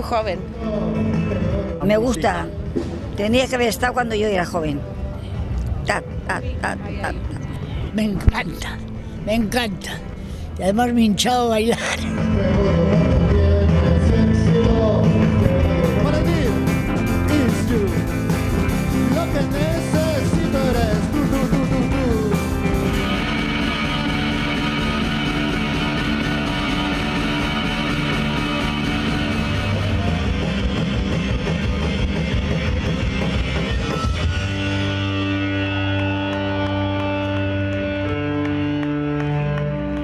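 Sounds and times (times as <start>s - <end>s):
person singing: 12.0s - 18.1s, 19.0s - 22.9s
live rock band: 12.0s - 40.0s.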